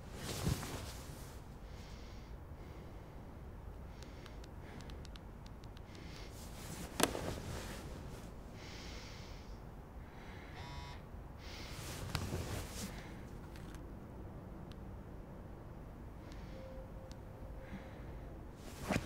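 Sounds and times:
person breathing softly: 0.2 - 5.0, 5.8 - 10.6, 11.4 - 13.4, 16.2 - 16.9, 17.5 - 19.0.

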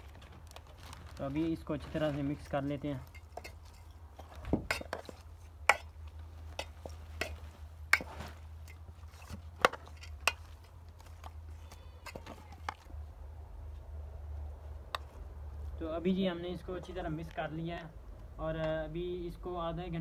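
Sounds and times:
metal spoon clinking on pot: 5.7 - 5.9.

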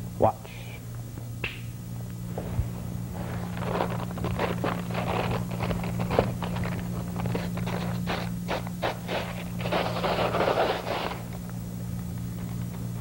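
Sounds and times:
low electrical hum: 0.0 - 13.0
paper crinkling: 3.1 - 11.4.

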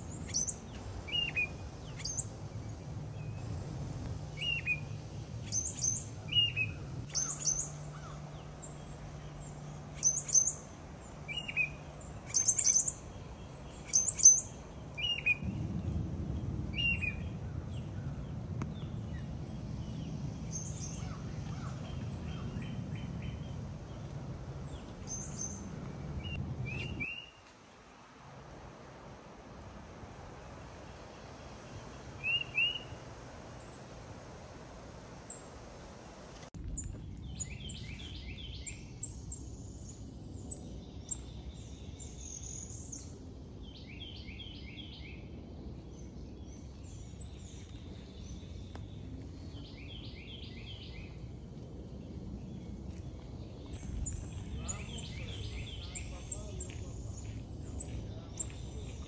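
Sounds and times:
low steady rumble: 0.0 - 27.2.

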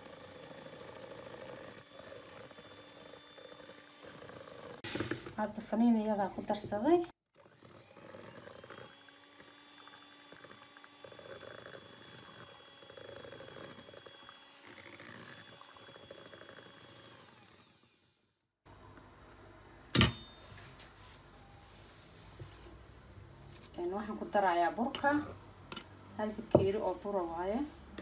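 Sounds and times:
electric hand mixer whining: 0.0 - 5.4, 7.4 - 18.2.

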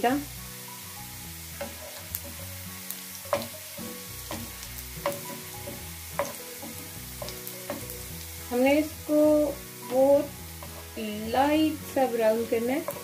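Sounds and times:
onion sizzling in oil: 0.0 - 13.0
wooden spatula scraping pan: 9.9 - 11.5.

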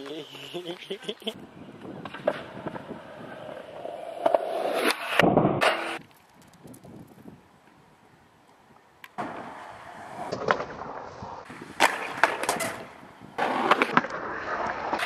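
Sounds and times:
skateboard wheels rolling on concrete: 0.0 - 15.0
skater hitting the ground: 10.2 - 15.0
skateboard clacks and slaps: 11.7 - 15.0.

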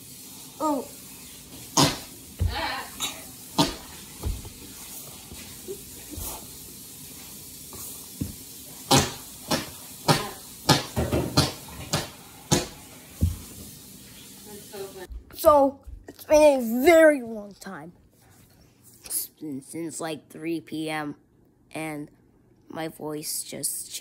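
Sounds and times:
knocks against floor: 3.6 - 4.6.

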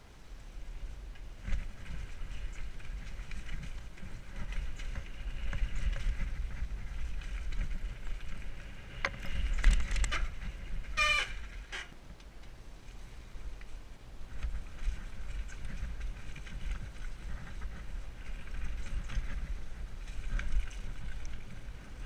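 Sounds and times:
low wind rumble on microphone: 0.0 - 22.0
bike rattling over bumps: 0.6 - 22.0
tyres rolling over dirt and leaves: 0.6 - 22.0.

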